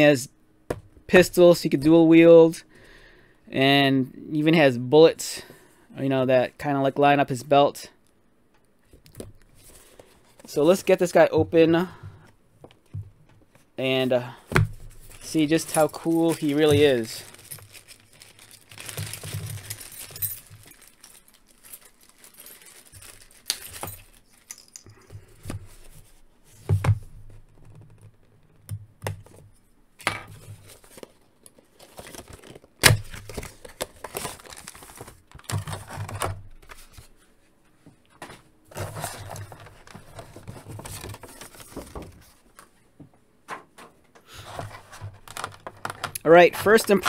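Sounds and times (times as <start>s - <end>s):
card and plastic rustling: 14.5s - 28.2s, 30.3s - 37.2s, 38.1s - 42.7s, 44.4s - 47.0s.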